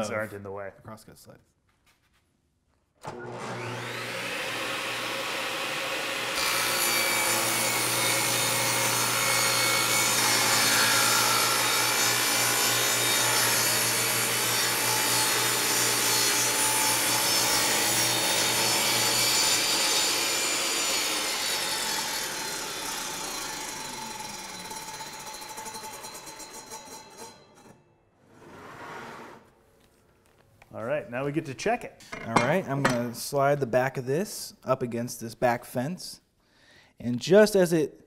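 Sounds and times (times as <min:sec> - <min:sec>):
table saw motor hum: 0:03.1 - 0:27.3
saw blade cutting wood: 0:03.1 - 0:27.8.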